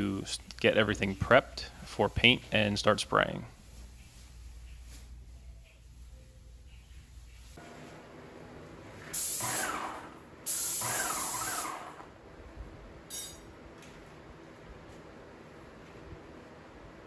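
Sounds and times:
paint sprayer hissing bursts: 9.2s - 12.0s.

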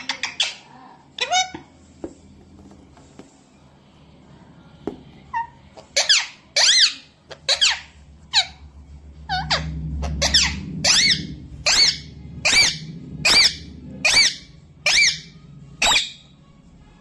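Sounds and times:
parakeet squawking: 0.0s - 1.7s, 5.3s - 16.3s.

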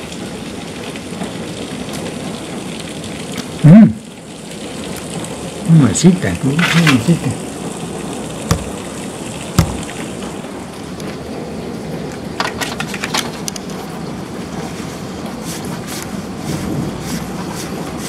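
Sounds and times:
heavy rain falling: 0.0s - 18.0s
dull thump: 8.5s - 8.8s, 9.6s - 10.0s.

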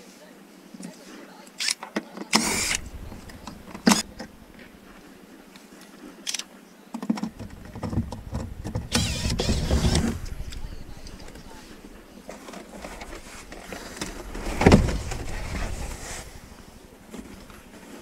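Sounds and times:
cordless drill whirring: 2.4s - 4.2s, 7.5s - 12.0s
rumbling motor: 2.4s - 5.0s, 7.3s - 18.0s.

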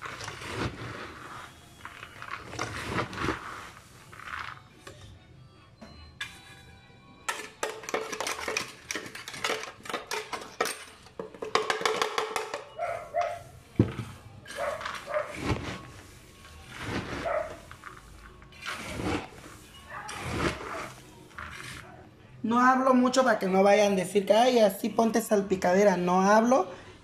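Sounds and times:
peanuts rattling in plastic tub: 0.0s - 4.6s, 7.3s - 12.6s.

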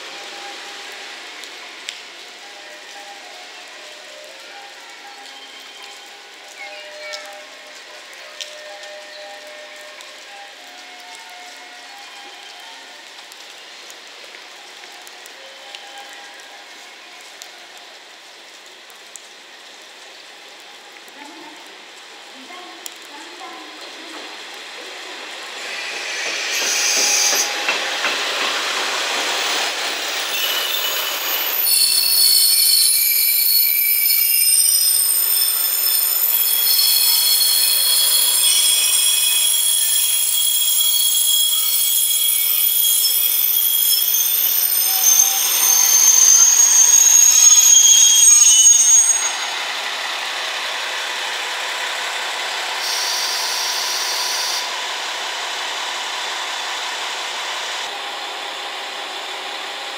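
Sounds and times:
train rolling on rails: 0.0s - 59.9s
wheels squealing: 25.6s - 49.6s.

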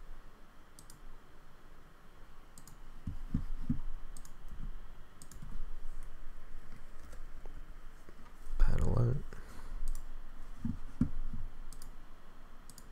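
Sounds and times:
computer mouse clicking: 0.8s - 1.0s, 2.6s - 4.6s, 5.2s - 5.5s, 9.8s - 12.0s, 12.7s - 12.9s.

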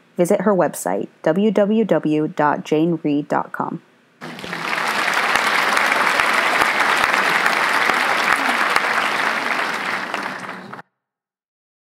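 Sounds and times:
audience applauding: 4.2s - 10.8s.

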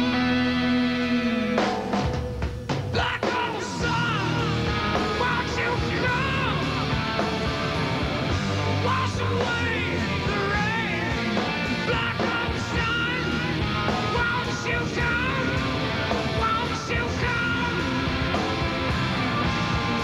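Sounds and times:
grunge band playing live: 0.0s - 20.0s
man singing: 2.9s - 7.0s, 8.6s - 18.5s.

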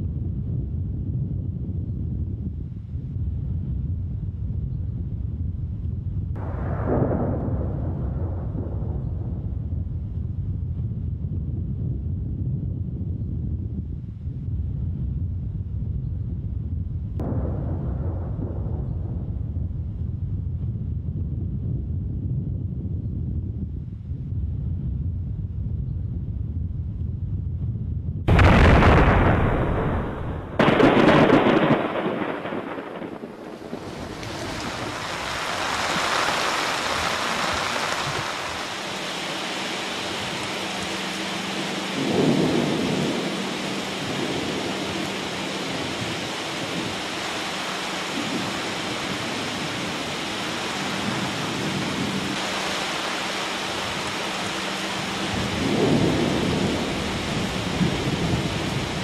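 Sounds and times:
low rumbling thunder: 0.0s - 13.8s, 14.4s - 23.7s, 26.5s - 59.0s
thunder crack: 6.3s - 10.6s, 17.2s - 20.4s, 28.3s - 59.0s
steady rain: 6.3s - 10.9s, 28.3s - 59.0s.

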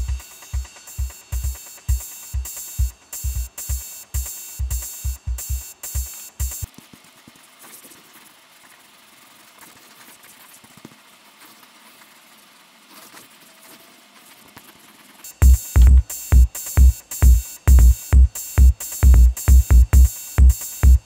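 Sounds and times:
electronic dance music: 0.0s - 6.7s, 15.3s - 21.0s.

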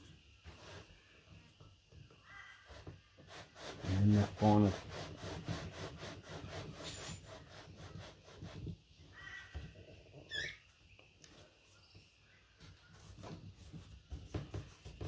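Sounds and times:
wooden frame scraping on board: 2.6s - 8.9s.

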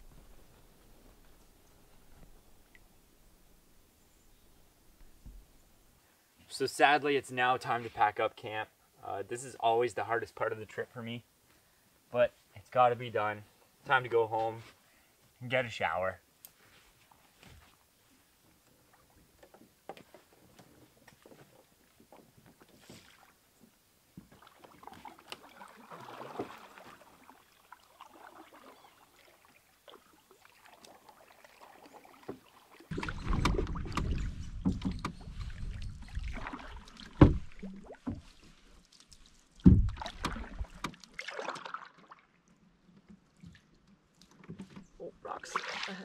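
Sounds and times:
paddle strokes splashing in water: 24.2s - 42.4s
wind rumbling on microphone: 32.9s - 38.2s
sharp knocks: 39.6s - 40.3s.

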